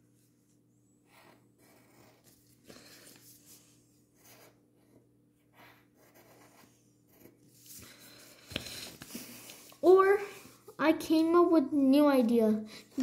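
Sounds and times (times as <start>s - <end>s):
pencil scratching on paper: 1.0s - 9.8s.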